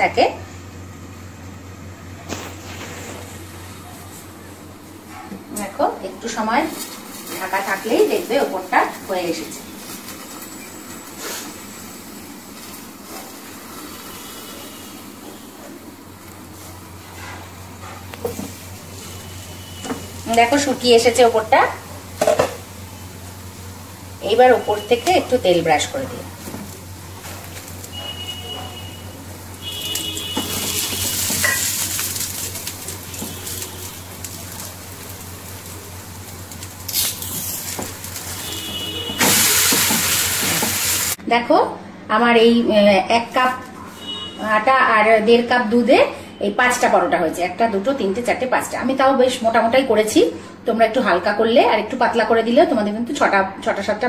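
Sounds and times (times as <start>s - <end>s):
frying pan hiss and sizzle: 6.2s - 41.2s.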